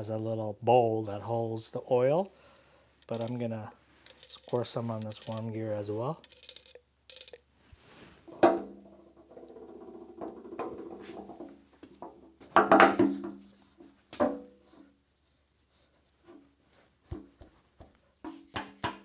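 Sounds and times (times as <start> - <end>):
metal rubbing and scraping: 3.0 - 8.4.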